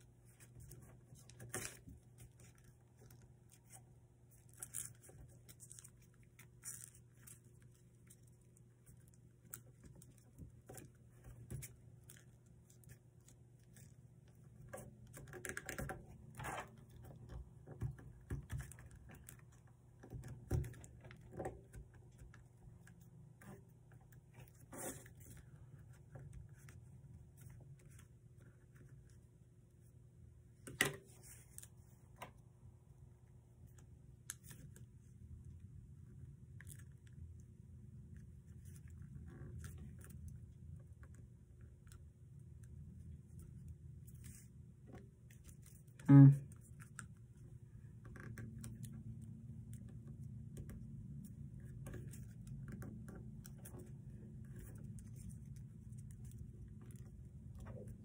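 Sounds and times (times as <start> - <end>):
faint steady hum: 0.0 - 58.0.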